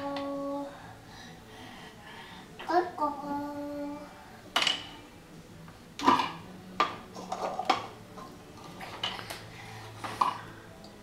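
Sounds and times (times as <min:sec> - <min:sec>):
plastic cups clacking on wooden floor: 0:06.0 - 0:08.0.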